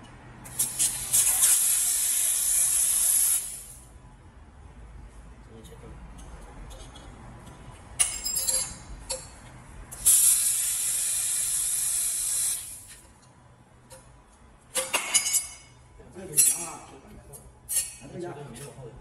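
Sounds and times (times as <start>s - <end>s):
laser cutter gas jet hiss: 0.5s - 3.8s, 10.0s - 13.0s
short metallic clinks: 8.0s - 9.4s.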